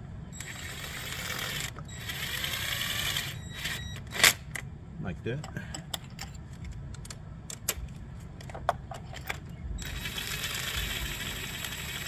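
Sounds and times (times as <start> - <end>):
power drill running steadily: 0.4 - 3.9, 9.8 - 12.0.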